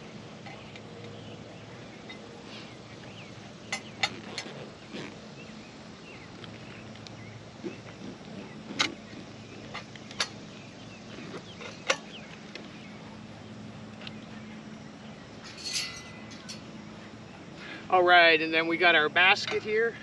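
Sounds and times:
steady low hum: 0:00.0 - 0:18.7
metal pipes knocking and clinking: 0:15.4 - 0:16.7.

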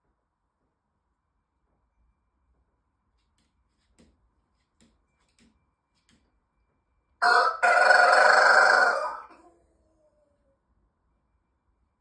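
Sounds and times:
rooster crowing: 0:07.2 - 0:09.6.

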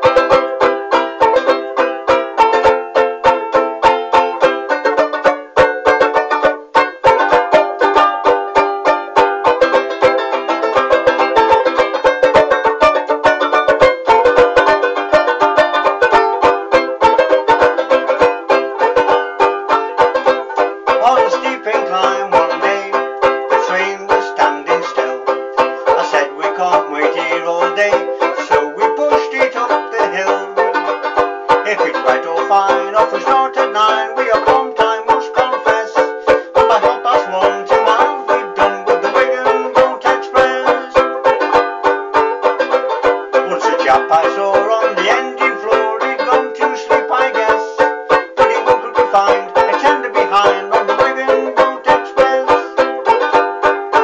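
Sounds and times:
banjo ukulele strummed: 0:00.0 - 0:54.0.

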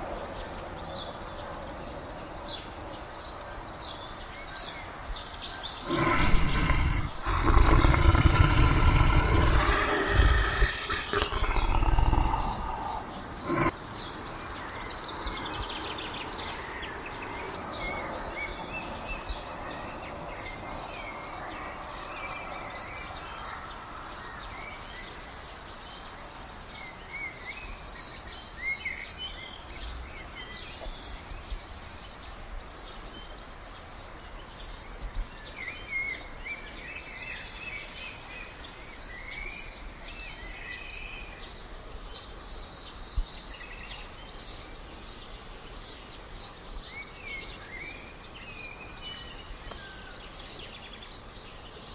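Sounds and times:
birds chirping: 0:00.0 - 0:23.6
outdoor ambience: 0:00.0 - 0:51.9
big cat growling: 0:05.8 - 0:13.8.

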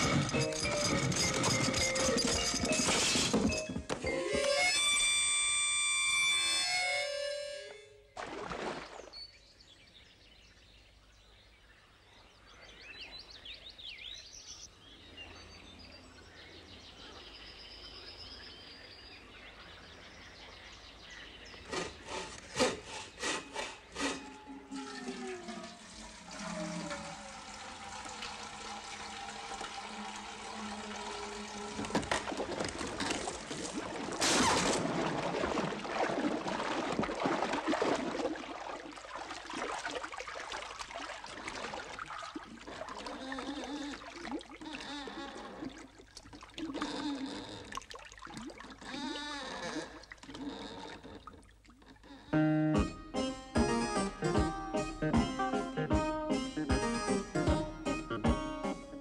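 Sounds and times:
wooden gate creaking: 0:00.0 - 0:07.2, 0:21.7 - 0:35.0, 0:43.0 - 0:47.9, 0:48.6 - 0:53.9
loud splash: 0:08.2 - 0:09.1, 0:29.9 - 0:43.2
water rushing: 0:24.0 - 0:47.0.

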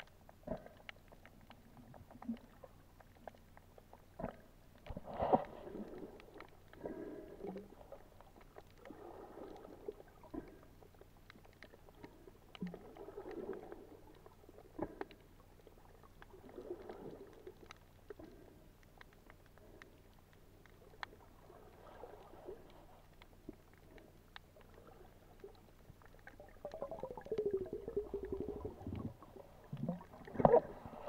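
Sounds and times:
faint clicks: 0:00.0 - 0:31.0
muffled underwater gurgling: 0:26.2 - 0:31.0.

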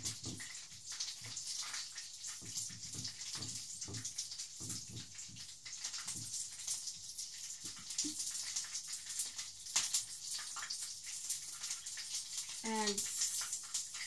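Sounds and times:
chicken sizzling in oil: 0:00.0 - 0:14.0.

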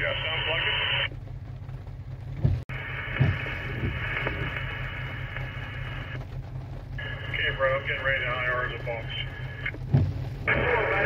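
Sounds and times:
radio channel hiss: 0:00.0 - 0:01.1, 0:02.7 - 0:06.2, 0:07.0 - 0:09.8, 0:10.4 - 0:11.0
diesel locomotive engine rumble: 0:00.0 - 0:11.0
soft thumps: 0:09.7 - 0:10.3.

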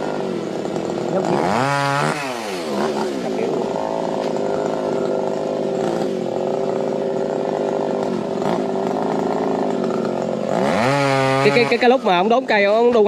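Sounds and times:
chainsaw engine running: 0:00.0 - 0:13.0.

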